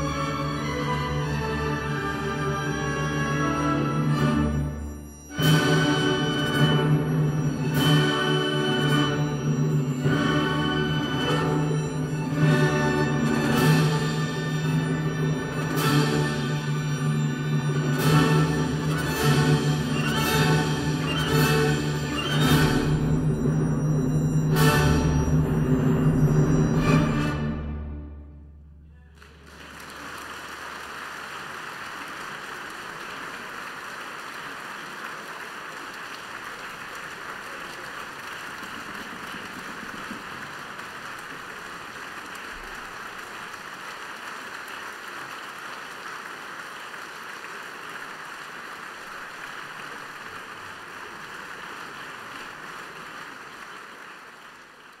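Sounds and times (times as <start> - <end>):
audience applause: 29.0 - 55.0.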